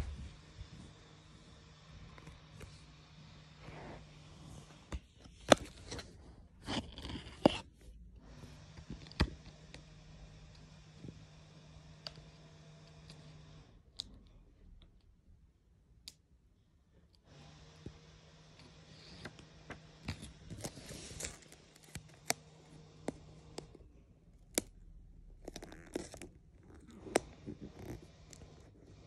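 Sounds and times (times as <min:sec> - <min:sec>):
paper sticker album rustling: 0:00.0 - 0:07.7, 0:18.8 - 0:24.8
low steady hum: 0:00.0 - 0:29.0
sharp clicks and scrapes: 0:03.6 - 0:07.9.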